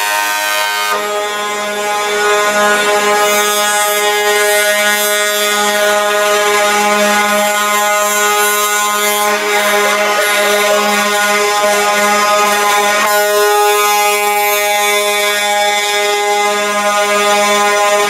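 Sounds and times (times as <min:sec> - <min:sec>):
loud steady horn tone: 0:00.0 - 0:18.0.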